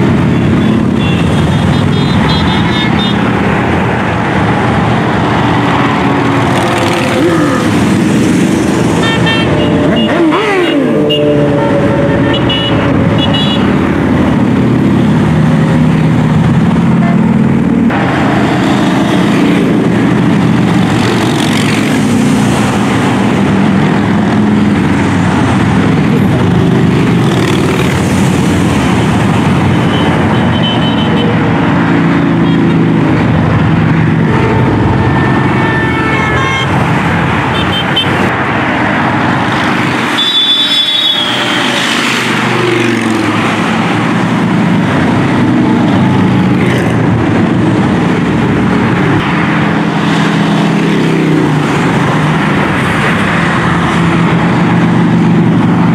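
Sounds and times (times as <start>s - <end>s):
highway traffic noise: 0.0s - 55.9s
motorcycles passing: 0.0s - 55.9s.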